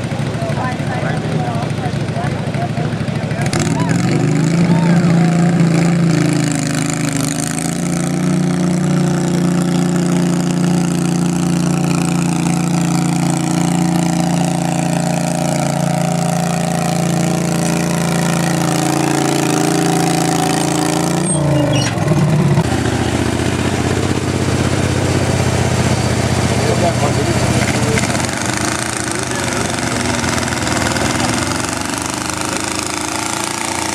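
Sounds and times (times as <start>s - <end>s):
lower engine sound: 0.0s - 33.9s
tractor engine at high revs: 0.0s - 33.9s.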